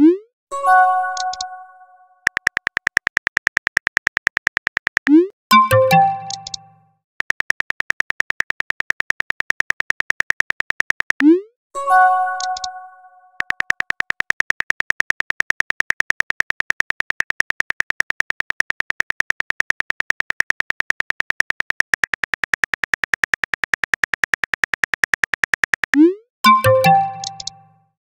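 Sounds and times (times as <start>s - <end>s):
phone keyboard typing clicks: 1.2s - 1.5s, 2.2s - 11.3s, 12.4s - 12.8s, 13.4s - 27.8s.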